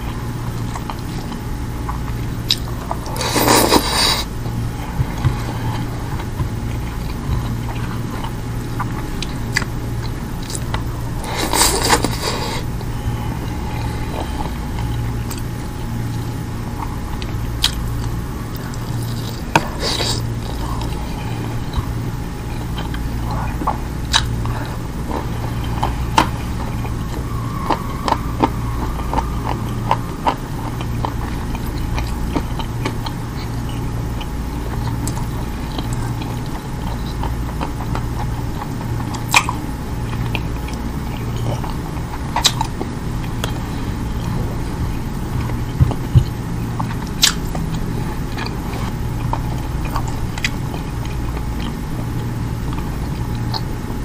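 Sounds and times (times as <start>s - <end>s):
low hum: 0.0s - 54.0s
person chewing food: 0.0s - 54.0s
wet mouth clicks and smacks: 46.8s - 47.7s.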